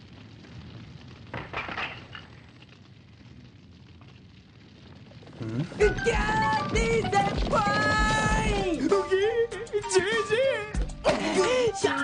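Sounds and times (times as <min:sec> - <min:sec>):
burst of cracking noise: 0:00.0 - 0:09.0
steady low rumble: 0:02.8 - 0:09.7.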